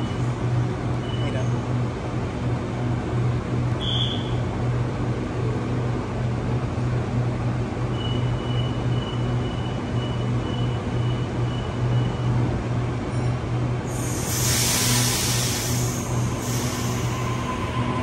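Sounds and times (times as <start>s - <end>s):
electric train humming: 13.7s - 18.0s.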